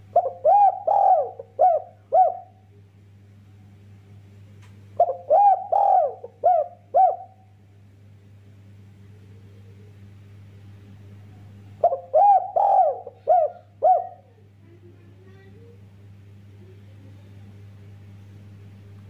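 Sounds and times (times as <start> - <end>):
dove cooing: 0.0 - 2.7, 5.0 - 7.5, 11.8 - 14.5
faint low hum: 0.0 - 19.0.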